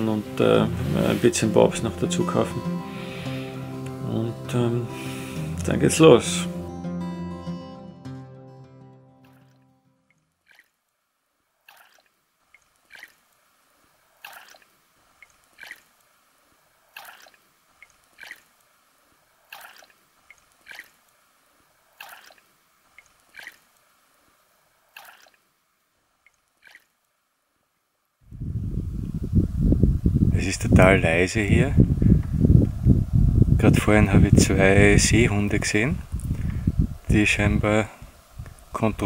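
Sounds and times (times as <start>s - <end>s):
paddle splashing and dripping: 9.3s - 10.8s, 11.6s - 13.5s, 14.1s - 16.2s, 16.8s - 18.8s, 19.4s - 21.2s, 21.9s - 23.9s, 24.9s - 25.5s, 26.2s - 27.0s.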